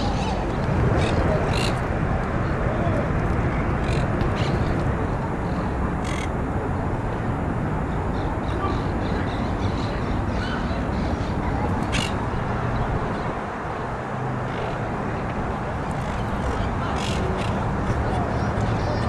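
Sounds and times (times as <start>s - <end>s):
parakeets squawking: 0.0s - 1.8s, 3.8s - 4.8s, 5.5s - 6.3s, 8.2s - 12.4s, 15.9s - 19.0s
steady low rumble: 0.0s - 19.0s.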